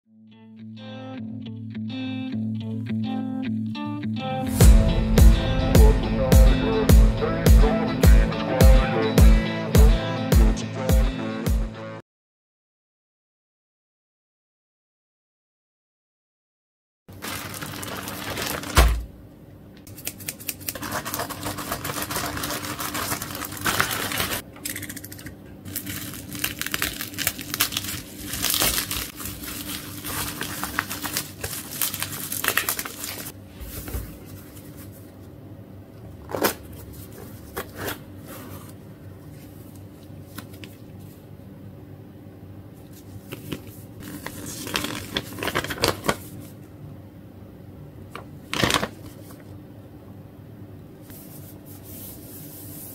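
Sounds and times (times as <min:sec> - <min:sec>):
bubble wrap crinkling: 0:17.1 - 0:19.1, 0:20.5 - 0:24.4, 0:25.7 - 0:33.4, 0:44.0 - 0:46.5.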